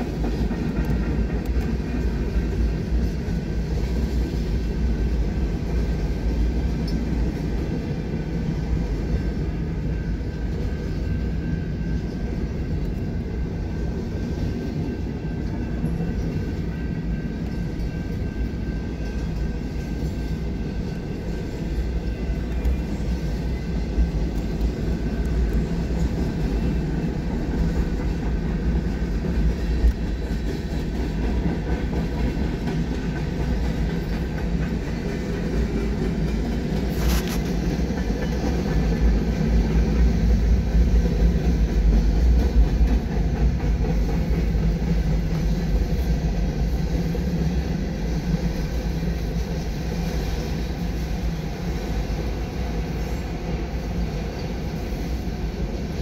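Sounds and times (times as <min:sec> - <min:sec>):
freight train rumbling and rattling: 0:00.0 - 0:56.0.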